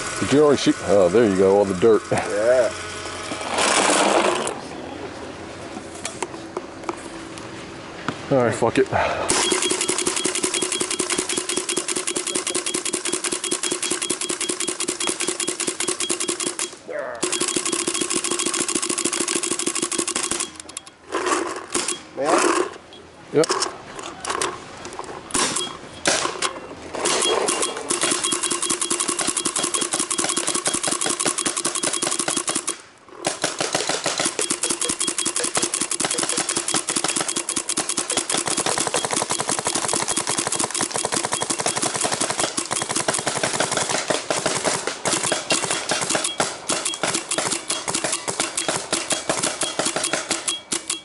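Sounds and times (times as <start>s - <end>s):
paintball marker firing: 27.4s - 50.9s.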